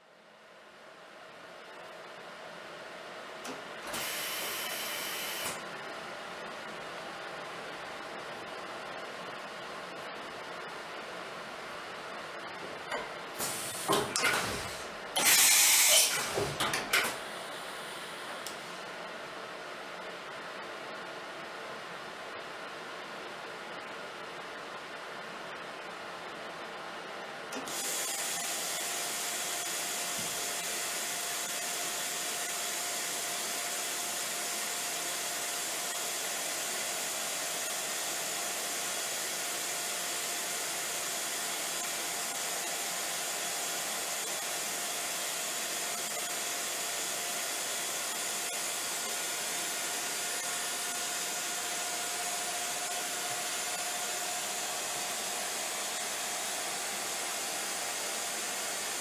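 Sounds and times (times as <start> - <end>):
machine spindle hiss and whine: 3.4 - 11.2, 13.2 - 19.0, 27.5 - 59.0.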